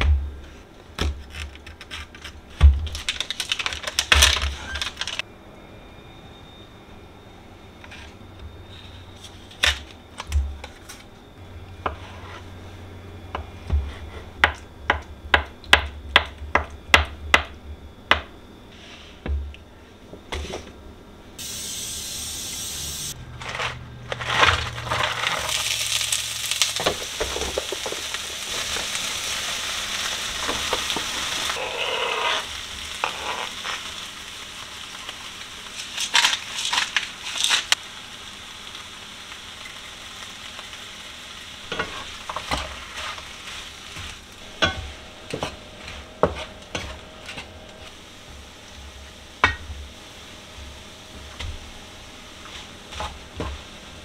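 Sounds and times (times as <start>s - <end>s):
food sizzling in frying pan: 21.4s - 23.2s, 24.4s - 54.0s.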